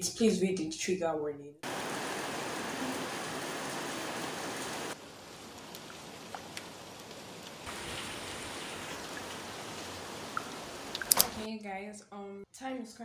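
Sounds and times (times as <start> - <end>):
rain falling: 1.6 - 11.5.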